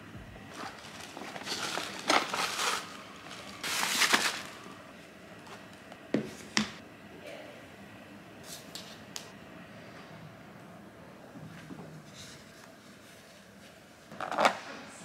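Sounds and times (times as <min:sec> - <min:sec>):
plastic bag rustling: 0:00.5 - 0:04.8.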